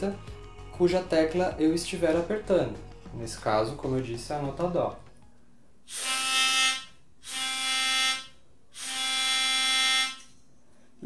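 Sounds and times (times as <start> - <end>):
melodica reed held notes: 5.9 - 10.3.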